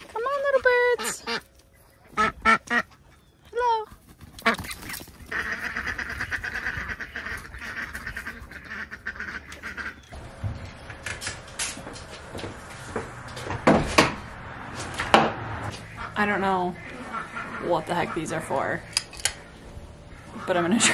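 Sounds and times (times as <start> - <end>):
ducks quacking: 0.0 - 3.2, 4.4 - 10.2, 15.4 - 20.9.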